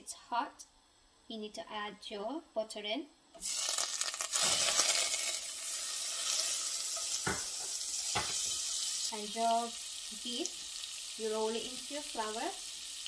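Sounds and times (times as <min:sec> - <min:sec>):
butter sizzling in a pot: 0:03.4 - 0:13.0.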